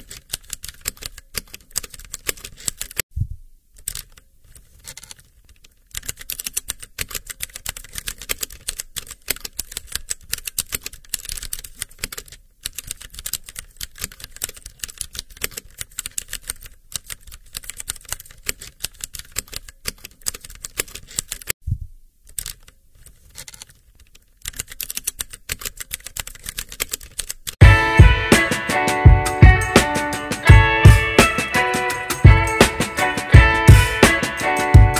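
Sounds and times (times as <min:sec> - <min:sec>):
fast typing on keyboard: 0:00.0 - 0:03.0, 0:05.9 - 0:21.6, 0:24.4 - 0:27.6.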